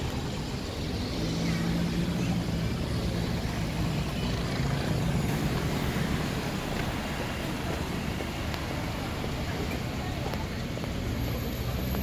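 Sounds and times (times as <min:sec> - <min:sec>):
engine hum: 0:00.0 - 0:12.0
road traffic rumble: 0:00.0 - 0:12.0.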